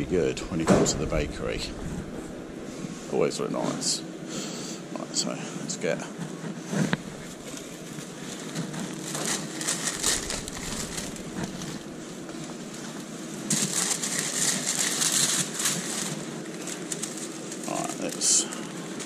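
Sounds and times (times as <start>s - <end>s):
shop interior hum: 0.0s - 19.0s
rustling and crinkling handling: 5.6s - 19.0s.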